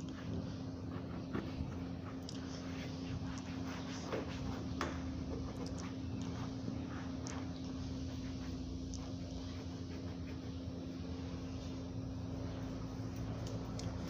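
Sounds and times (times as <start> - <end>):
cloth rubbing: 0.0 - 13.1.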